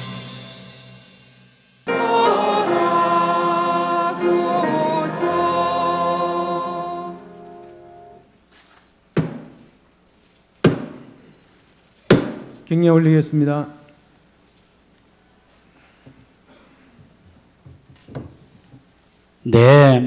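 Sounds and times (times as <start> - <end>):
choir singing sustained notes: 1.9 - 8.2
wooden staff knocks: 9.2 - 9.6, 10.6 - 11.1, 12.1 - 12.6.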